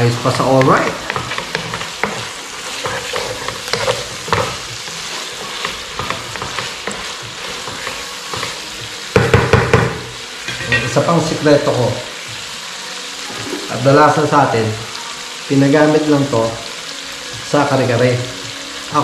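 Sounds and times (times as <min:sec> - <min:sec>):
meat sizzling in a frying pan: 0:00.0 - 0:19.0
wooden spatula scraping pan: 0:00.3 - 0:09.3.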